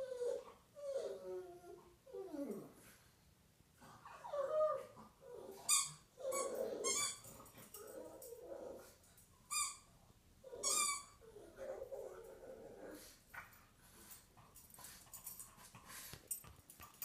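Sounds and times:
dog howling and whining: 0.0s - 2.8s, 4.1s - 9.0s
squeaky toy squeaking: 5.6s - 7.2s, 9.5s - 9.9s, 10.5s - 11.2s.

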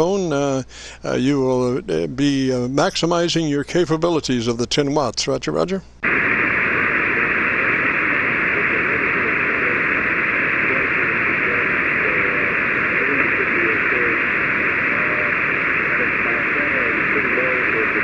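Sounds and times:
radio static hiss: 0.0s - 3.2s, 6.0s - 18.0s
faint radio voice: 6.8s - 18.0s.

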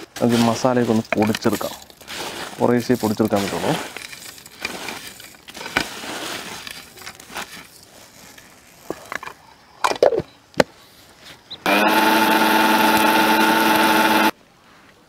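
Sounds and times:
mixer grinder motor whining: 11.7s - 14.3s.

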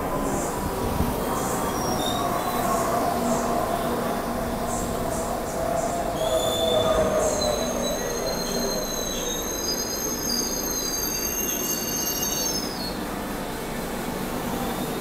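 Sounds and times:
train rumbling past: 0.0s - 15.0s
high-pitched wheel squeals: 6.2s - 13.0s.

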